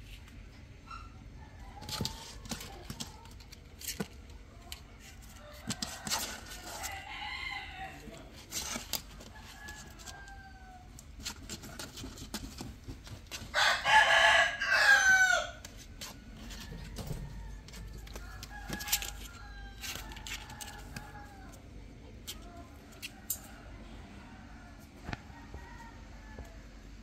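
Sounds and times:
rooster crowing: 5.4s - 8.2s, 13.5s - 15.7s, 16.4s - 21.6s, 23.0s - 26.9s.

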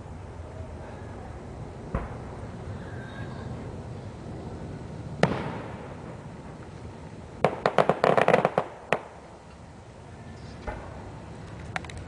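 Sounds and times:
firework crackling pops: 1.8s - 3.7s, 4.8s - 9.7s, 10.5s - 12.0s
firework bang with echo: 1.9s - 2.4s, 5.2s - 6.7s, 7.4s - 9.2s.

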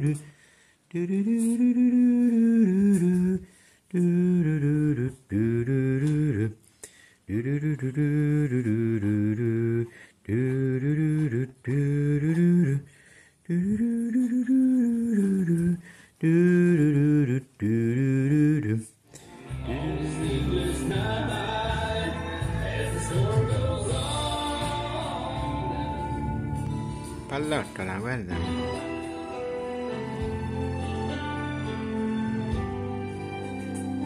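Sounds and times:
low voice chanting: 13.5s - 18.9s.

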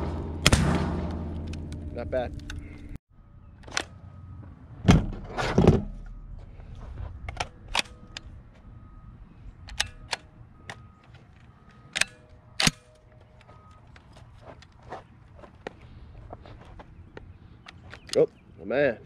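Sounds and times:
metallic clicks of shotgun reload: 9.7s - 10.8s, 11.9s - 12.9s.

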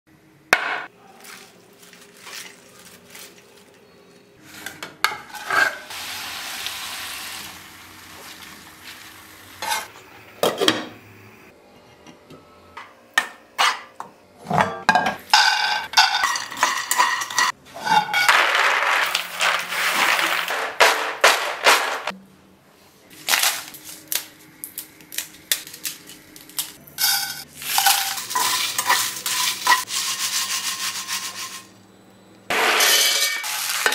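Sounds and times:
leaves handled in steel bowl: 1.0s - 3.9s
sizzling: 1.2s - 11.5s, 15.3s - 22.1s, 23.2s - 31.8s, 32.5s - 33.9s
spatula scraping pan: 4.5s - 5.9s, 27.0s - 31.7s
peanuts clattering into pan: 15.4s - 22.1s, 23.2s - 30.2s, 32.6s - 33.9s.

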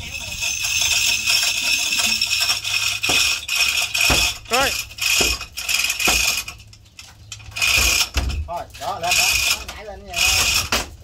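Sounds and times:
metal clanking and ratcheting: 0.0s - 11.0s
heavy knocks: 3.0s - 6.4s.

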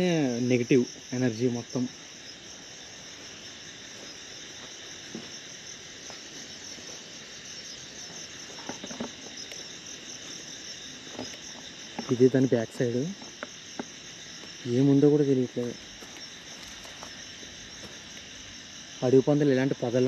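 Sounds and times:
crickets chirring: 0.0s - 20.0s
footsteps on dry leaves: 15.8s - 18.4s.

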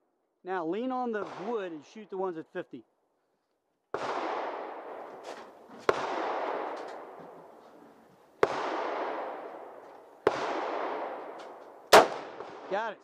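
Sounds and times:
rifle shots with echo: 1.1s - 2.0s, 3.9s - 13.0s.

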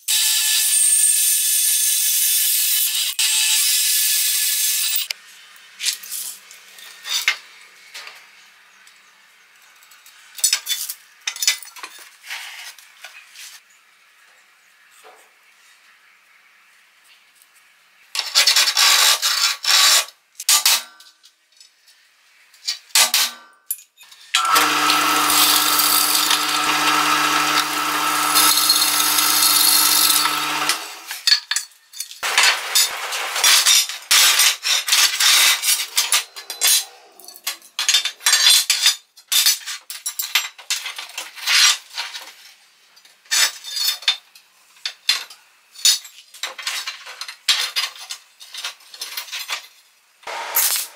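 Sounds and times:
drill press drilling: 24.4s - 31.2s
scriber scratching steel: 24.4s - 31.2s
steel pieces clinking on workbench: 28.3s - 41.7s, 50.6s - 50.9s.

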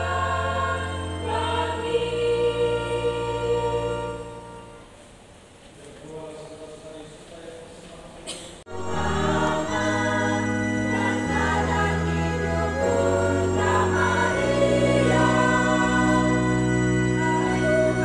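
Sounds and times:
choir singing a hymn: 0.0s - 5.0s, 8.7s - 18.0s
keyboard chords: 0.0s - 5.0s, 8.7s - 18.0s.

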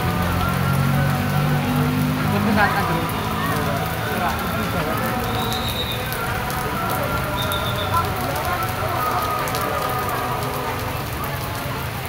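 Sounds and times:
faint voices murmuring: 0.0s - 12.0s
rain on tent canopies: 0.0s - 12.0s.

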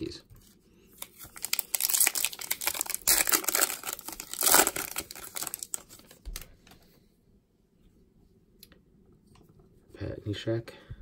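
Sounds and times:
foil wrapper tearing and crinkling: 1.0s - 6.2s.

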